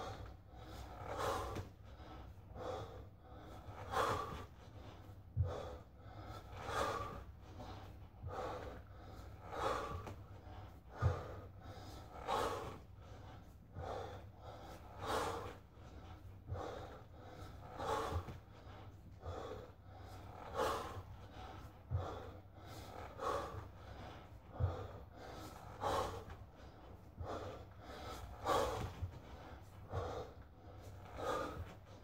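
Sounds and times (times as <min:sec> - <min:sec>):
man breathing hard: 0:00.0 - 0:32.0
dull low thuds: 0:10.9 - 0:11.5, 0:24.4 - 0:25.0.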